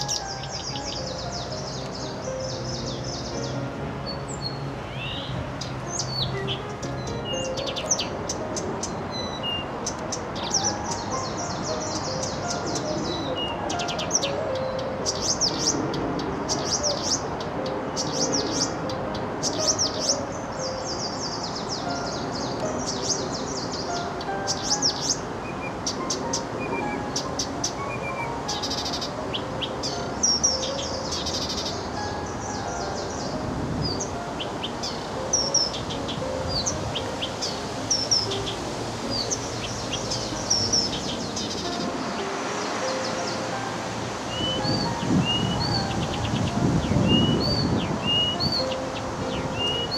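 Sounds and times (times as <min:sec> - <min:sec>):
reed warbler singing: 0:00.0 - 0:49.9.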